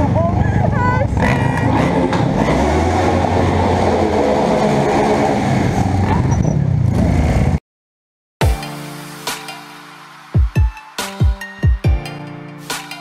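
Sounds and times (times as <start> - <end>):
motorcycle engines running: 0.0 - 7.6.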